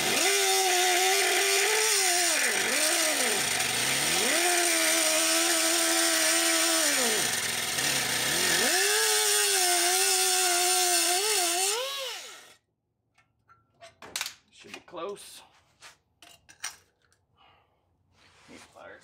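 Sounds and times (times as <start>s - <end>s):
grinder cutting steel: 0.0s - 12.6s.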